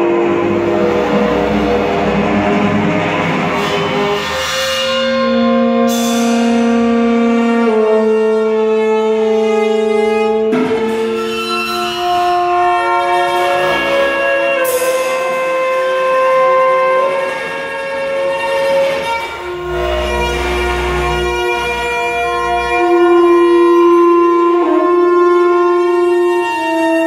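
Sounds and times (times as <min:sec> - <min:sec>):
chamber music with held notes: 0:05.4 - 0:27.0.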